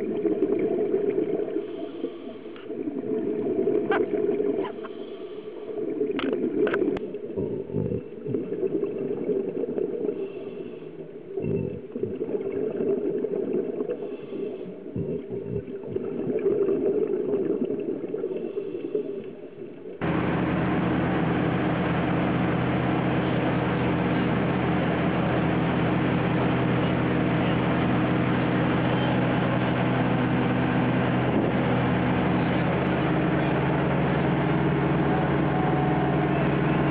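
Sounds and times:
underwater bubbling: 0.0s - 36.9s
boat engine running: 20.0s - 36.9s.

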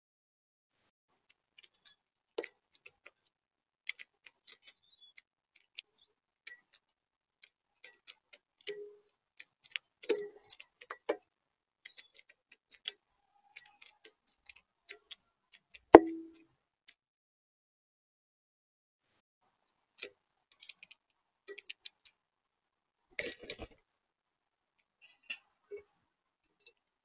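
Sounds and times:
birds pecking at feeder tray: 3.9s - 11.2s, 11.8s - 15.9s, 20.0s - 22.2s.

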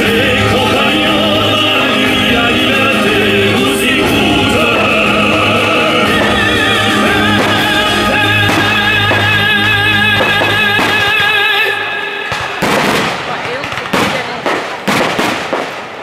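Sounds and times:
instrumental backing music: 0.0s - 12.1s
operatic singing with vibrato: 0.0s - 13.0s.

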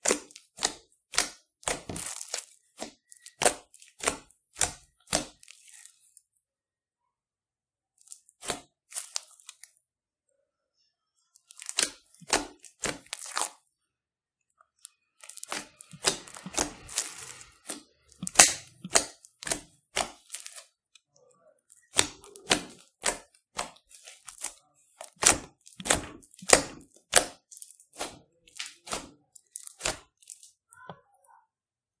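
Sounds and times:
slime popping and crackling: 0.0s - 6.1s, 8.1s - 9.7s, 11.4s - 13.6s, 14.9s - 20.8s, 21.7s - 30.7s.

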